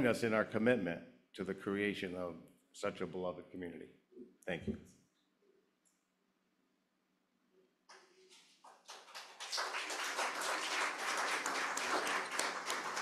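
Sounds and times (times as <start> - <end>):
congregation applauding: 7.9 - 13.0.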